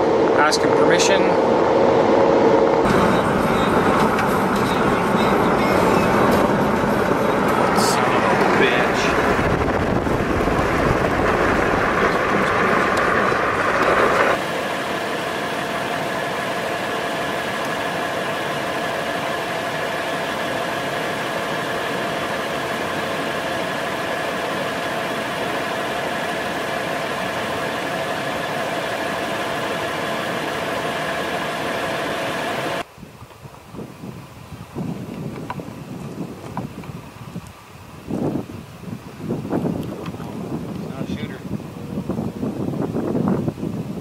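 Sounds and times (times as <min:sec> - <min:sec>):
mechanical hum with high tones: 0:00.0 - 0:33.1
vehicle driving with road noise: 0:00.0 - 0:33.7.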